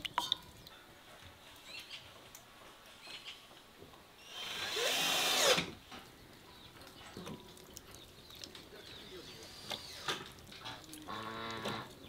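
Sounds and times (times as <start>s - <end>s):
cordless drill running: 4.3s - 5.7s.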